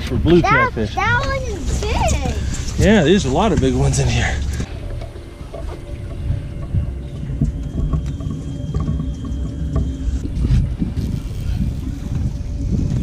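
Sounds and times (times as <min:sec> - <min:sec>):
low uneven boat rumble: 0:00.0 - 0:13.0.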